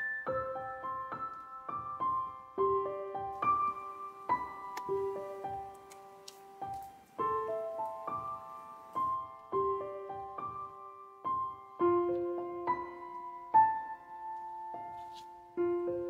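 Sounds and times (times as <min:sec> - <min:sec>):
gentle solo piano melody: 0:00.0 - 0:16.0.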